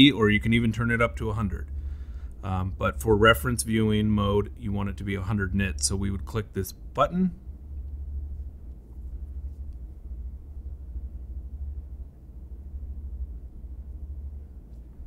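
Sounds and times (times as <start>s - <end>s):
low room noise rumble: 0.0s - 15.0s.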